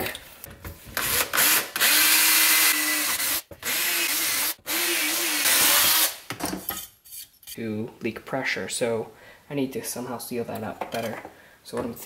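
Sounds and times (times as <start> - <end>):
drill boring through metal sheet: 1.0 - 6.2.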